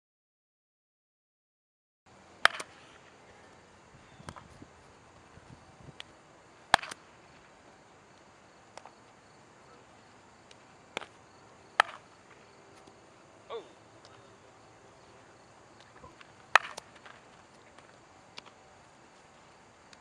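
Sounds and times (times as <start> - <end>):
insects chirping: 2.1 - 20.0
ball smacking into leather glove: 2.4 - 2.8, 6.7 - 7.0, 11.8 - 12.1, 15.8 - 18.5
ball cracking off bat: 2.4 - 3.2, 6.7 - 7.5, 10.5 - 13.0, 15.7 - 18.6.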